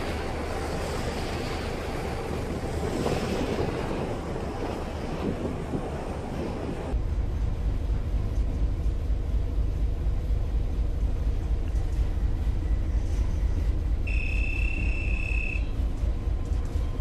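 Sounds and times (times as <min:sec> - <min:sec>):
ship engine rumble: 0:00.0 - 0:17.0
high electronic beep: 0:14.1 - 0:15.7.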